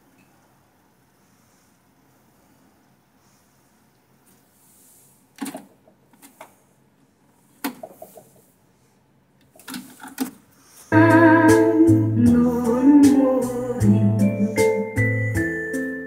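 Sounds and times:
music from cassette: 10.9 - 16.0.

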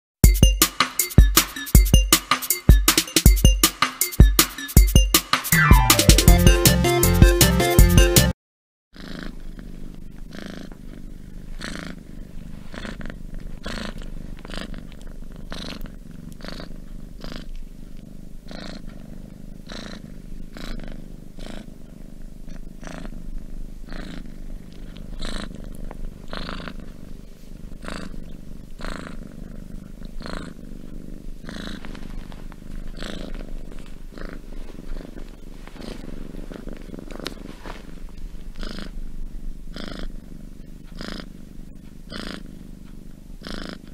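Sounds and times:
cat purring: 9.0 - 43.9.

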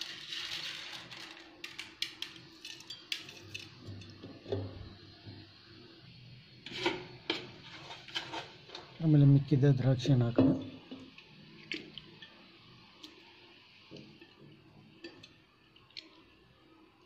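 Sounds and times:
grains rustling poured into jar: 0.0 - 3.5
grains clicking and tapping: 0.0 - 3.7.

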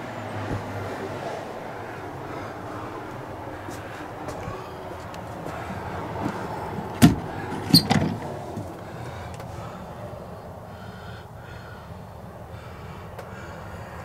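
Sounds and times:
steady low rumble: 0.0 - 7.6
cabinet clunk with squeak: 7.0 - 8.2.

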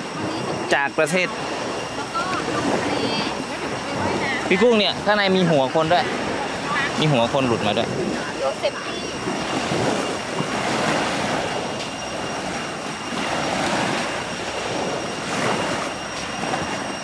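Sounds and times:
surf breaking on beach: 0.0 - 17.0.

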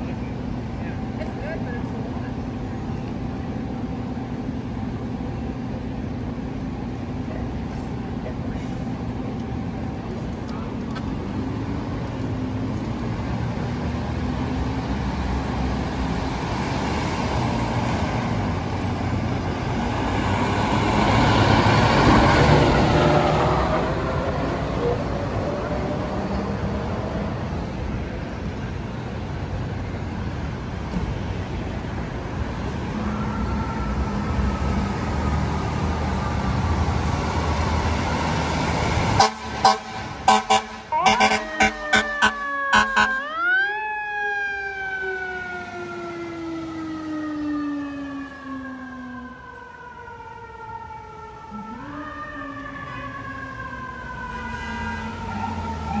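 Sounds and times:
diesel engine: 0.0 - 56.0
traffic: 0.0 - 56.0
fire truck siren: 13.0 - 27.3, 32.3 - 56.0
short horn blasts: 39.2 - 43.2.

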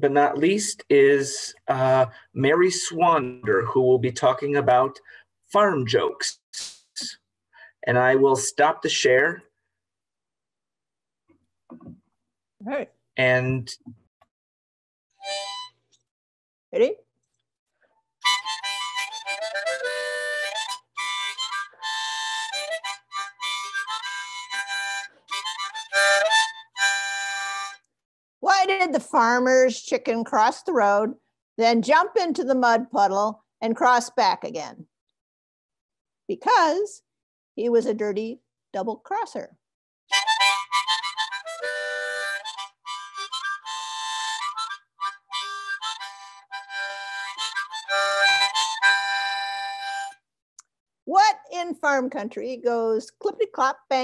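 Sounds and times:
harmonica playing: 15.2 - 15.8, 18.2 - 27.8, 40.1 - 50.2.

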